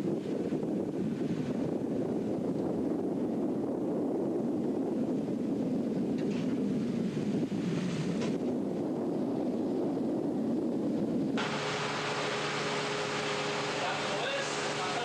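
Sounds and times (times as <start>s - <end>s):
wind on microphone: 0.0s - 15.0s
sea water rushing along hull: 11.4s - 15.0s.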